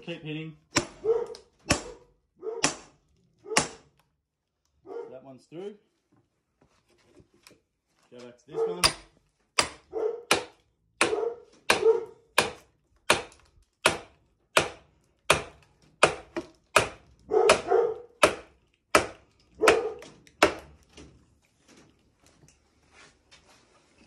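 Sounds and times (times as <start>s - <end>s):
sledgehammer striking axe head: 0.7s - 2.0s, 2.6s - 3.0s, 3.6s - 3.9s, 8.8s - 20.7s.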